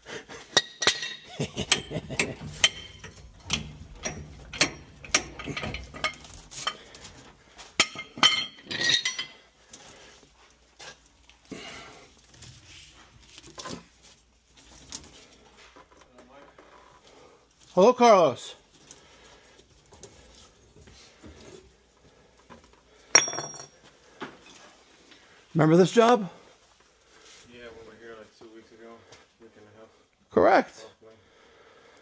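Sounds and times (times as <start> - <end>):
metal pipe fittings clinking: 0.5 - 9.5, 23.1 - 24.7.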